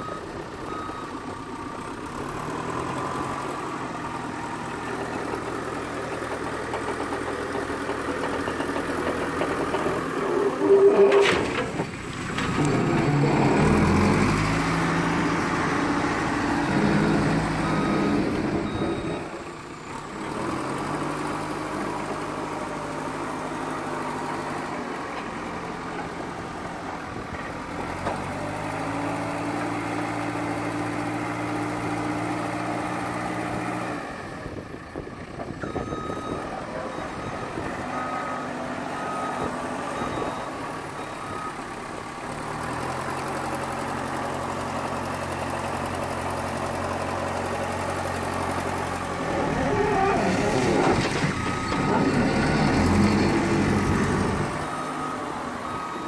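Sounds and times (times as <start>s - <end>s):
diesel engine running: 31.5s - 56.0s.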